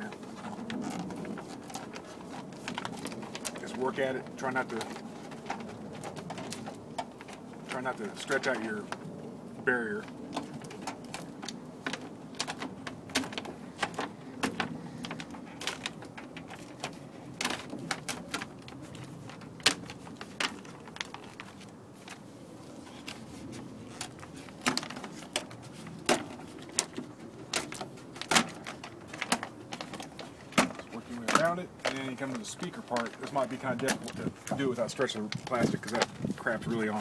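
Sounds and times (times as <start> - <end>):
plastic sheet peeling and crinkling: 0.0 - 37.0.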